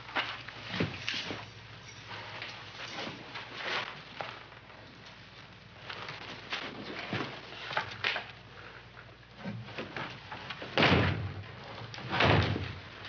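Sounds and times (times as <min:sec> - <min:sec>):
rustling movement: 0:00.0 - 0:08.9.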